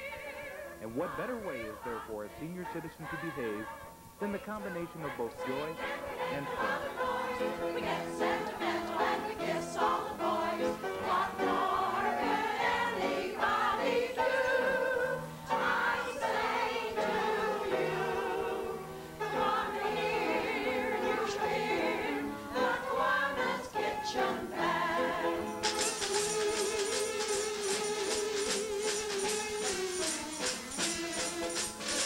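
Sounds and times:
women singing in chorus: 0.0 - 2.0, 5.0 - 25.6.

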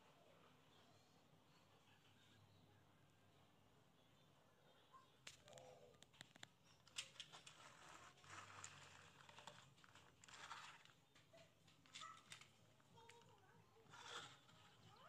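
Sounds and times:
toy truck clicking on wood: 5.2 - 15.0.

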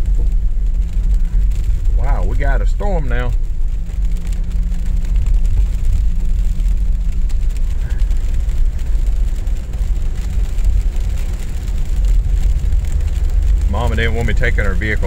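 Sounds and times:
car cabin low rumble: 0.0 - 15.0.

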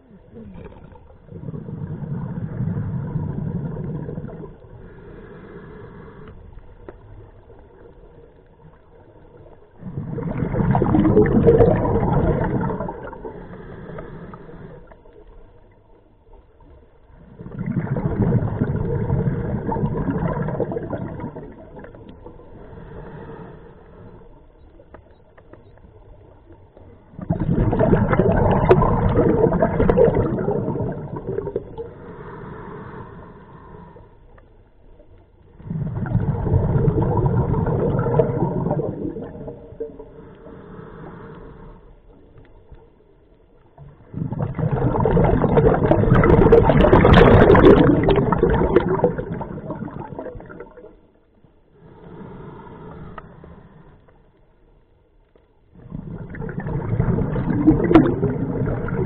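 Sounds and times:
bubbling underwater exhalations: 0.0 - 4.8, 9.8 - 14.8, 17.2 - 22.4, 27.1 - 32.3, 35.6 - 40.2, 43.8 - 51.1, 55.8 - 59.0
regulator inhalation hiss: 40.2 - 41.9, 51.8 - 54.0.

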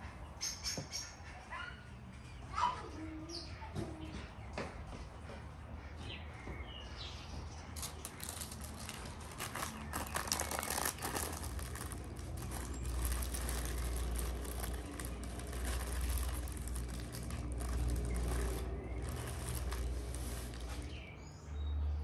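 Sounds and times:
baking paper crinkling: 7.8 - 21.1.

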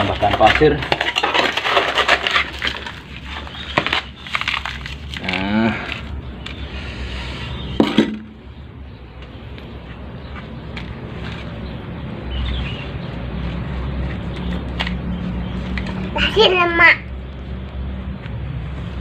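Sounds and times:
crackles and clicks: 0.0 - 6.7.

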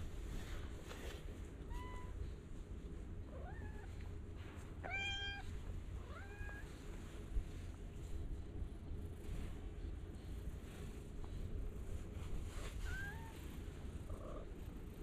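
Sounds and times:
cat meowing: 4.8 - 6.7.

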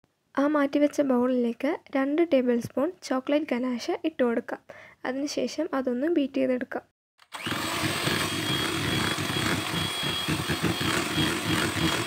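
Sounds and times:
electric hand mixer whipping: 7.2 - 12.0.

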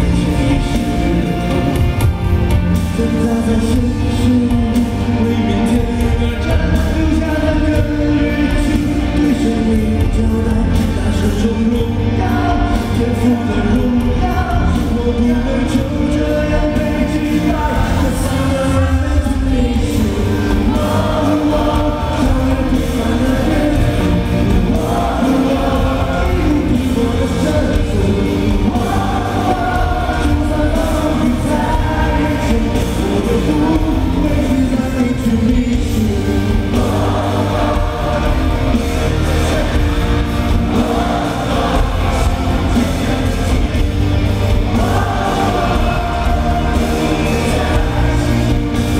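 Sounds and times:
man singing into microphone: 0.0 - 1.9, 2.8 - 39.9
amplified pop music with heavy bass: 0.0 - 48.9.

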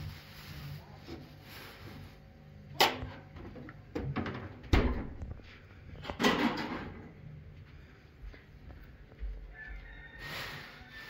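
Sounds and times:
refrigerator doors shutting: 2.8 - 5.2.

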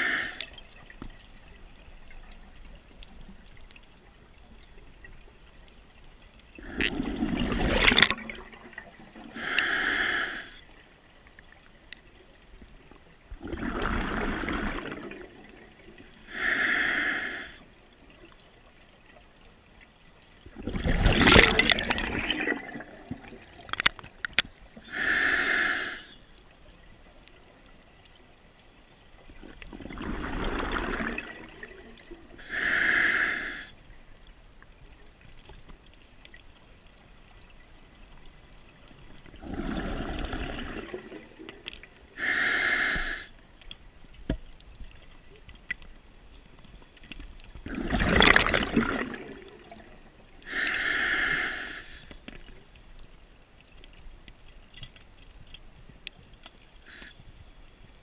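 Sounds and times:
regulator inhalation hiss: 0.0 - 0.4, 9.3 - 10.6, 16.3 - 17.6, 24.8 - 26.2, 32.4 - 33.8, 42.2 - 43.4, 50.4 - 52.2
exhaled bubbles rushing: 6.6 - 9.3, 13.4 - 16.1, 20.5 - 23.8, 29.4 - 32.4, 39.2 - 41.8, 47.6 - 50.3.

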